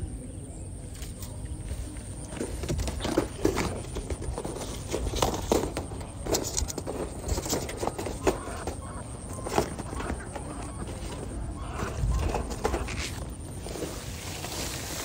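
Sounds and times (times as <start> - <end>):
footsteps through vegetation: 1.0 - 15.0.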